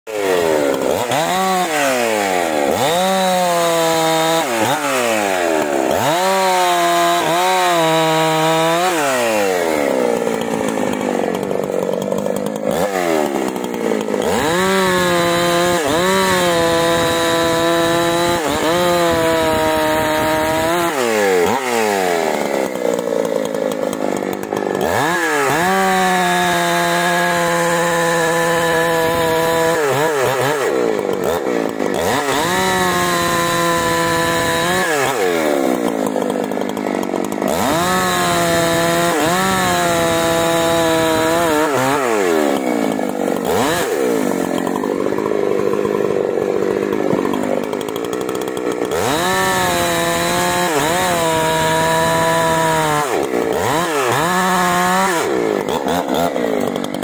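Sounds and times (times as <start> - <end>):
chainsaw cutting logs: 0.0 - 57.0.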